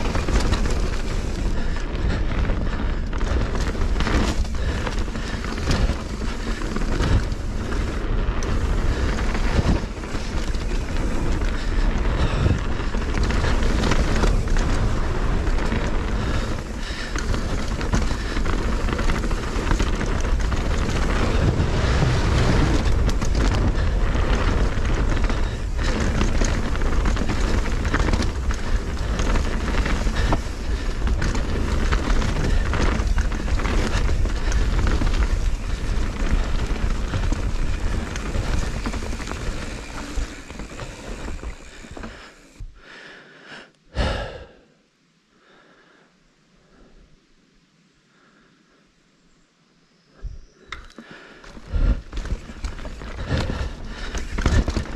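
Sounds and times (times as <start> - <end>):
wind buffeting microphone: 0.0 - 42.1
bike clattering: 0.0 - 42.7, 50.7 - 54.9
bike tyre roar: 0.0 - 42.8, 50.2 - 54.9.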